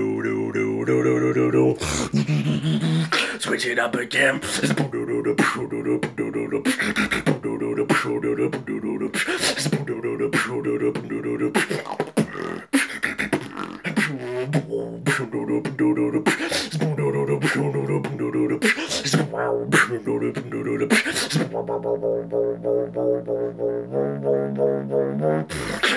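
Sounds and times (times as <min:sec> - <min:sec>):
gliding vocal sweep: 0:00.0 - 0:03.5, 0:13.9 - 0:23.1
beatboxing percussive hits: 0:01.8 - 0:03.3, 0:04.4 - 0:25.9
hummed bass line: 0:19.2 - 0:25.8.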